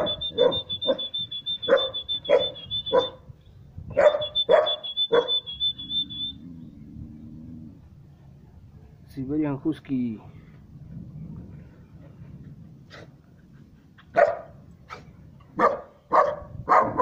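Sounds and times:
puppy barking: 0.0 - 3.2, 3.9 - 6.3, 14.1 - 17.0.

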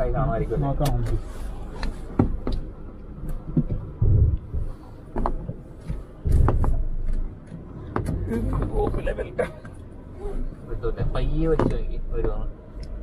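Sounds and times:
low engine rumble: 0.0 - 13.0
vehicle body knocks and rattles: 5.1 - 9.2, 11.0 - 12.5.

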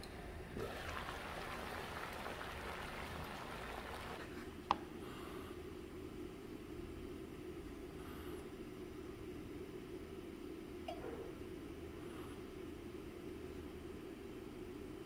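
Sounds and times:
water bubbling in a pot: 0.6 - 4.2.

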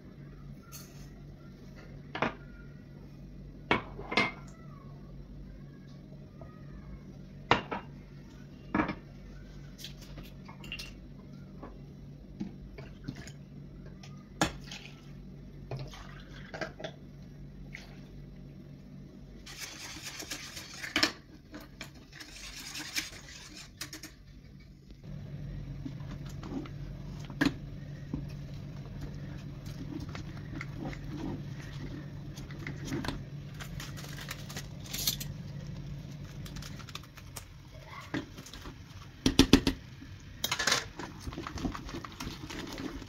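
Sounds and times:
wire whisk stirring liquid: 22.0 - 24.2.

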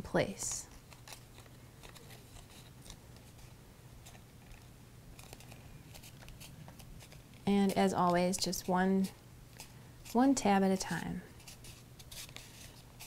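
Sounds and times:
cardstock crackling and rustling: 0.7 - 10.3
paper tabs clicking: 0.9 - 8.5.

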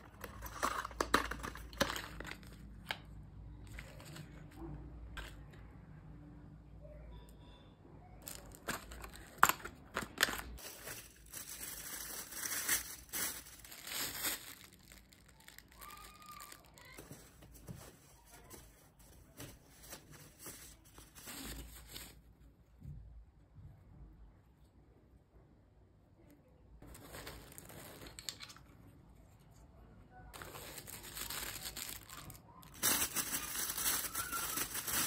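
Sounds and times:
plastic and paper packaging crinkling: 0.0 - 3.0, 3.7 - 5.6, 8.2 - 22.3, 30.3 - 35.0.

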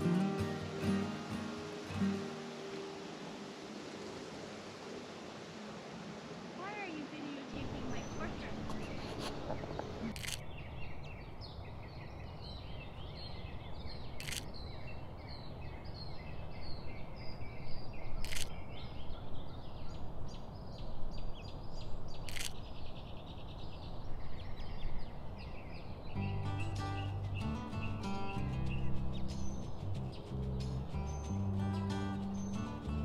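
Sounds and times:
birds chirping and singing: 6.8 - 33.0.

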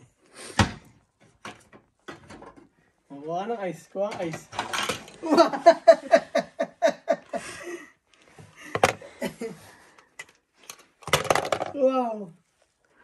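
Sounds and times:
person laughing: 5.2 - 7.9.

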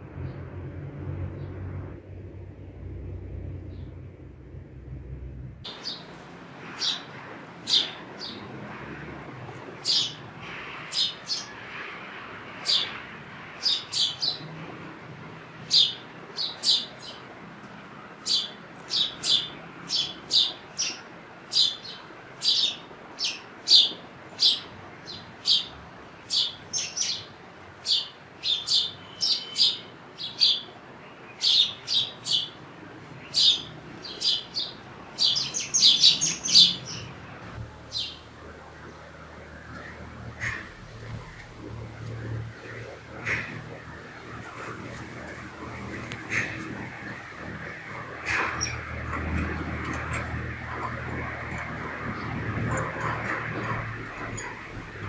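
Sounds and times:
sparrow chirping: 5.7 - 8.5, 9.7 - 11.6, 12.6 - 13.0, 13.6 - 14.5, 15.6 - 17.3, 18.2 - 25.7, 26.3 - 32.6, 33.2 - 37.2, 37.8 - 38.3, 39.6 - 41.5, 42.1 - 55.0.

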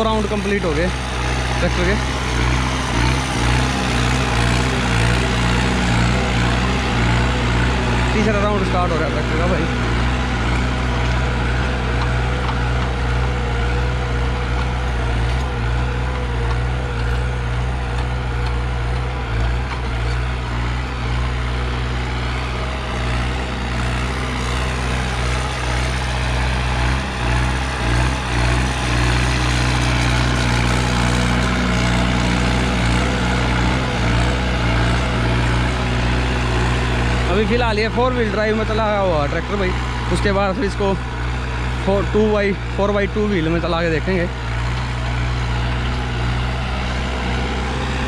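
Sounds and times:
tractor diesel engine under load: 0.0 - 48.0.

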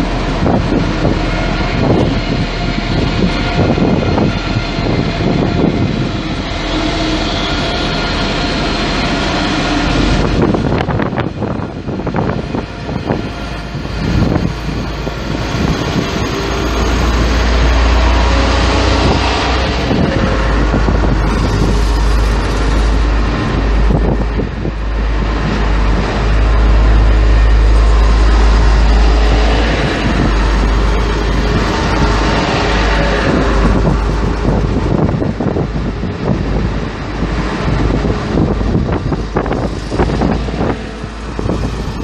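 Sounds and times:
diesel train engine droning: 0.0 - 42.0
train passing: 0.0 - 42.0.

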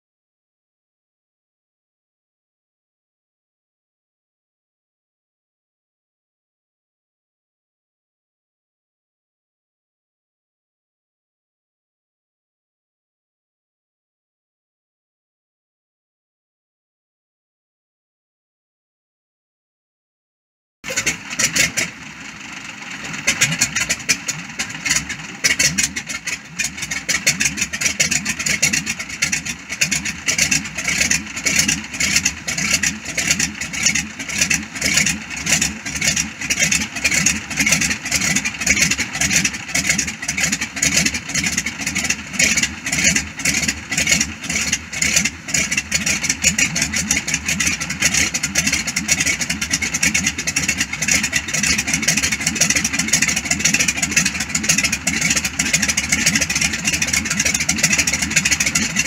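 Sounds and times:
aircraft engine idling: 20.8 - 59.0
radial aircraft engine starting: 20.8 - 59.0.

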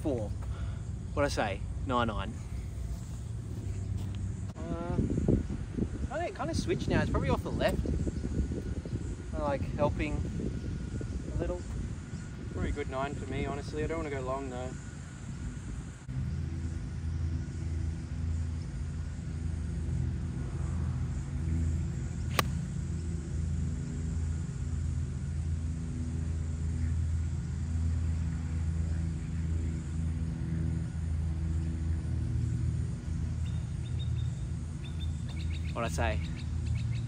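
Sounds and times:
low engine drone: 0.0 - 37.0
golf club striking ball: 22.3 - 22.8.

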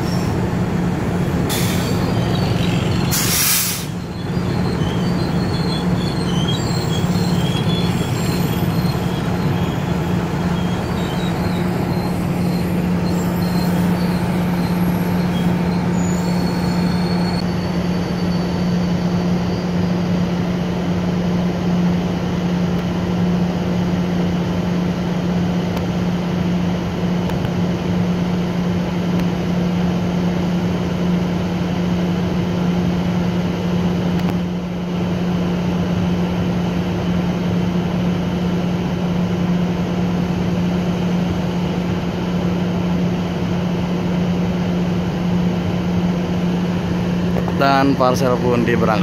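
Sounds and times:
locomotive engine idling: 0.0 - 17.4.

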